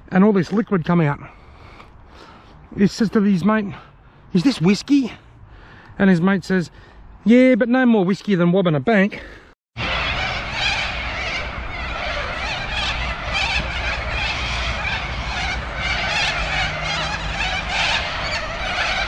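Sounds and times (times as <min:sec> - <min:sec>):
cockatoos screeching: 0:09.8 - 0:19.0
low rumble: 0:09.8 - 0:19.0.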